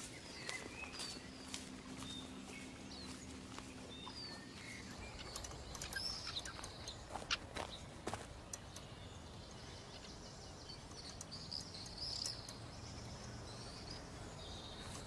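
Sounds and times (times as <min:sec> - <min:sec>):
footsteps on gravel: 0:00.0 - 0:08.8, 0:14.7 - 0:15.0
bird chirps: 0:00.0 - 0:15.0.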